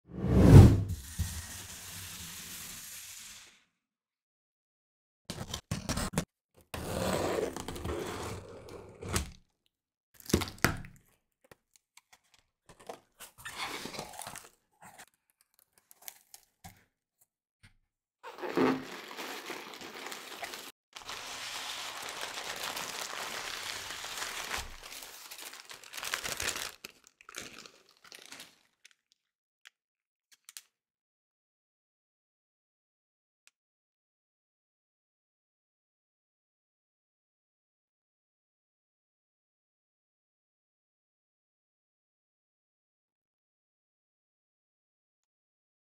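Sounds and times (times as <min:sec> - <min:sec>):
tape tearing: 0:18.3 - 0:21.1, 0:21.9 - 0:28.6
paper and air pillows crinkling: 0:18.4 - 0:28.7.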